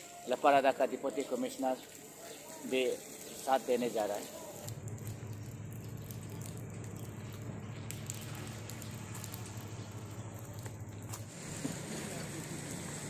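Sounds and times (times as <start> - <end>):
light hiss: 0.9 - 5.4, 7.8 - 13.0
vehicle engine running: 4.7 - 13.0.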